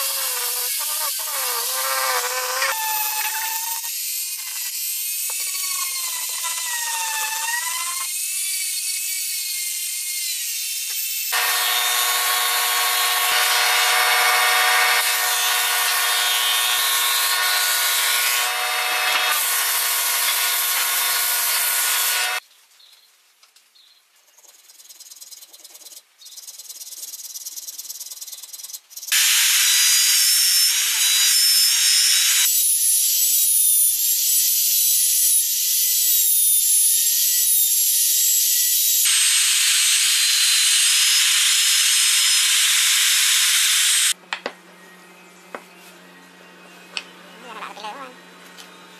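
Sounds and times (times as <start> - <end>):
rotary tool sanding wood: 11.3 - 22.4
router cutting wood: 11.3 - 22.4, 29.2 - 32.5, 39.0 - 44.2.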